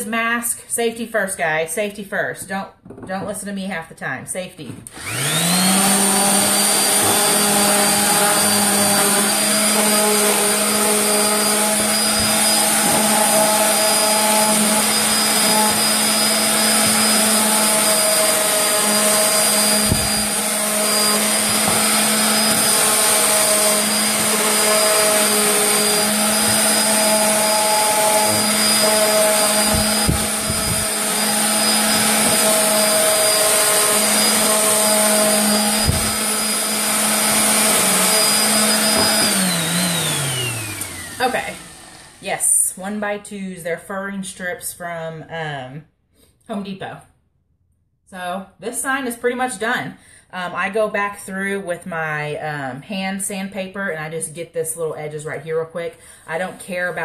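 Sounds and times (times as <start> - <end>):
orbital sander on wood: 4.9 - 42.6.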